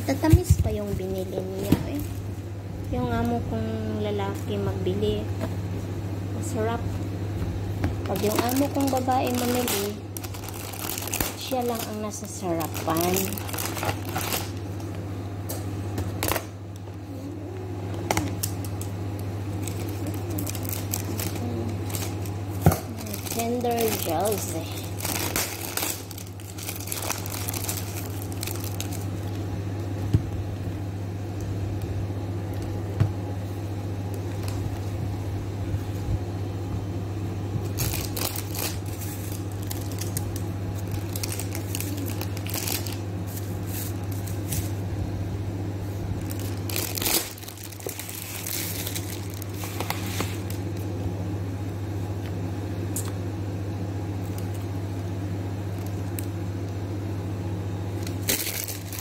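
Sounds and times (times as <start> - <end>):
rustling and crinkling: 0.0 - 2.4, 7.9 - 14.6, 19.6 - 29.4, 37.6 - 44.8, 45.8 - 50.9
steady low hum: 0.0 - 59.0.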